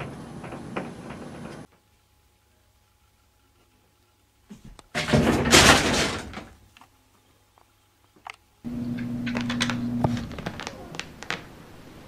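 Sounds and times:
wooden door thudding and rattling: 0:04.9 - 0:06.6
steady low hum: 0:07.8 - 0:12.0.

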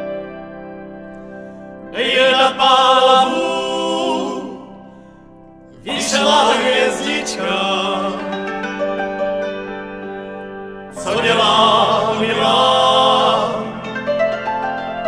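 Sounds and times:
sustained keyboard chords: 0:00.0 - 0:15.0
person singing: 0:01.9 - 0:04.8, 0:05.8 - 0:08.7, 0:11.0 - 0:14.1.

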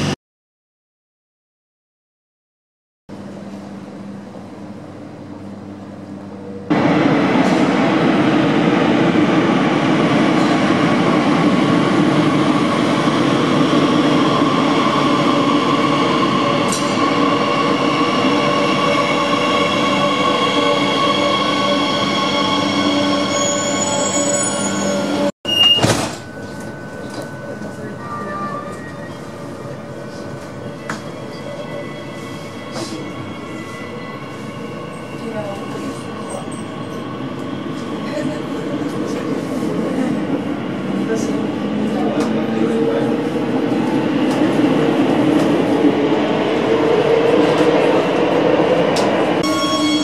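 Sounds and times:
train whining and squealing: 0:06.2 - 0:50.0
short high beep: 0:23.5 - 0:27.3.

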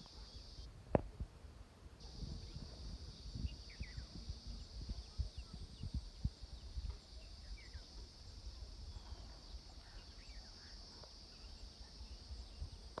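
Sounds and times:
insect drone: 0:00.0 - 0:01.0, 0:02.0 - 0:13.0
wind buffeting microphone: 0:02.0 - 0:10.8.

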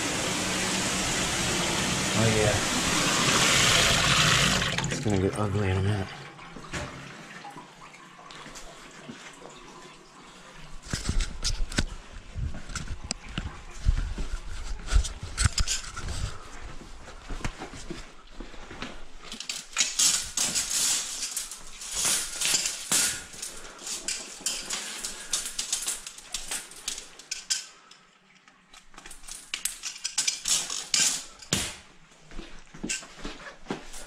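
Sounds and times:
steel cable rattling on concrete: 0:19.3 - 0:28.0, 0:29.0 - 0:31.6.

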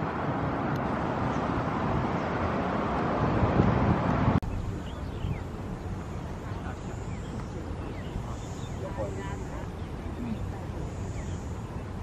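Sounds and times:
distant road traffic: 0:00.0 - 0:12.0
wind on microphone: 0:00.0 - 0:12.0.

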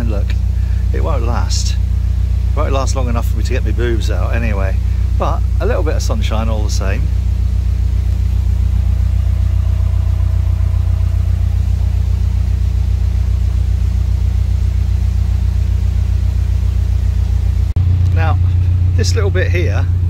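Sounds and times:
diesel engine idling: 0:00.0 - 0:20.0.

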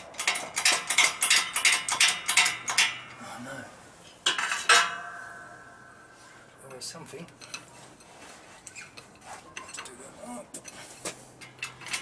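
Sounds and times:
steel parts clinking together: 0:00.0 - 0:03.2, 0:04.2 - 0:05.2, 0:10.6 - 0:12.0
loud metal clanks ringing: 0:04.3 - 0:06.1.

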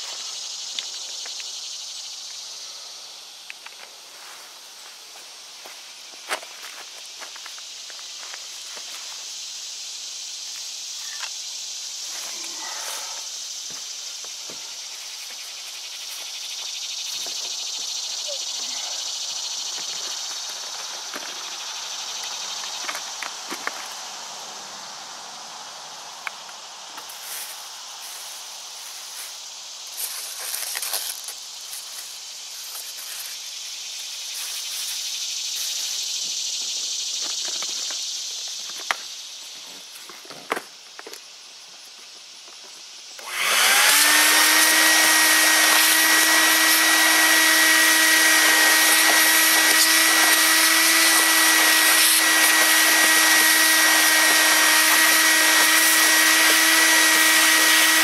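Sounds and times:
shop vac motor whine: 0:43.2 - 0:58.0.

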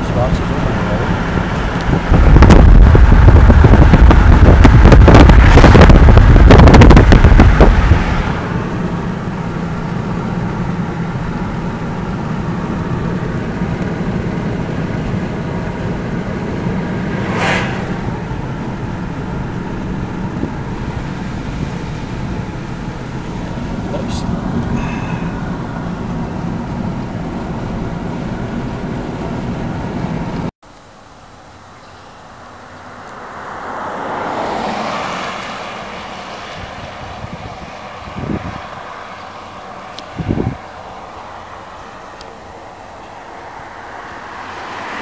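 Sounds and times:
road and engine noise in car: 0:00.0 - 0:45.0
wind buffeting microphone: 0:00.3 - 0:09.8, 0:36.4 - 0:40.8
brief whoosh: 0:16.8 - 0:19.8.

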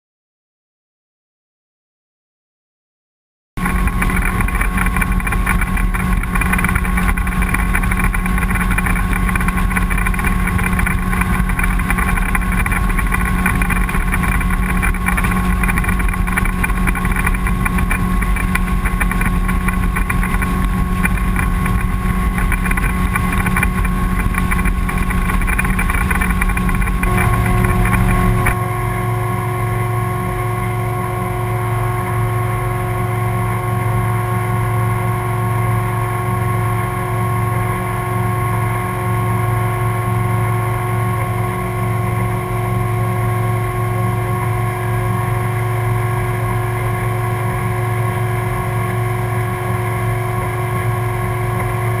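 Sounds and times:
outboard motor running: 0:03.6 - 0:52.0.

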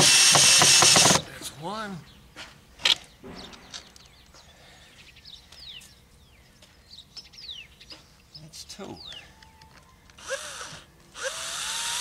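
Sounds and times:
bird chirping: 0:03.0 - 0:10.0.

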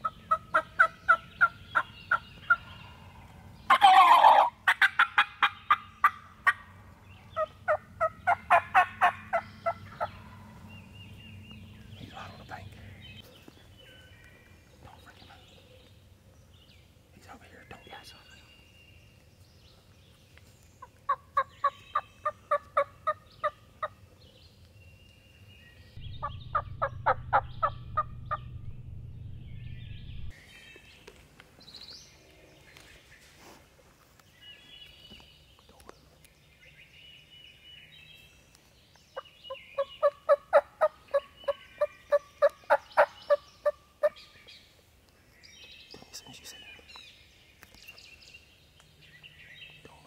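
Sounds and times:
turkey calls: 0:00.0 - 0:10.6, 0:20.8 - 0:24.0, 0:26.0 - 0:28.6, 0:39.2 - 0:44.3.

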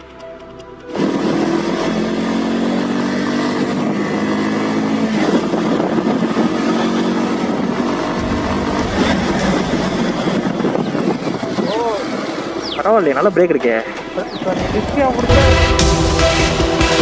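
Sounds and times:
motorcycle engine cruising: 0:00.0 - 0:17.0
deep rumble: 0:05.6 - 0:12.7.

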